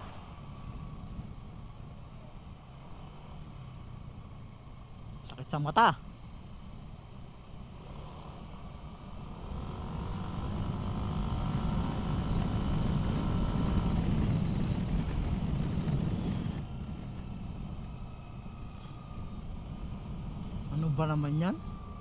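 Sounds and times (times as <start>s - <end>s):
wind rush: 9.9s - 20.9s.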